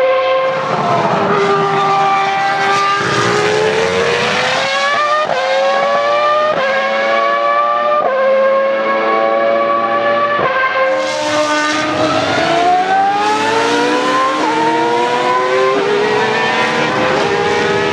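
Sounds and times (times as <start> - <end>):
racing car engine revving: 0.0 - 17.9.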